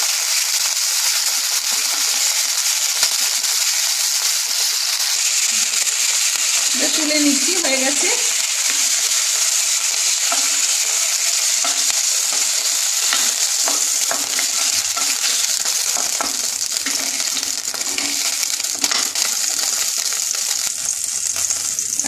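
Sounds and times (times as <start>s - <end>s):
chicken sizzling in hot oil: 0.0s - 22.0s
wooden spatula tapping and scraping: 10.2s - 20.4s.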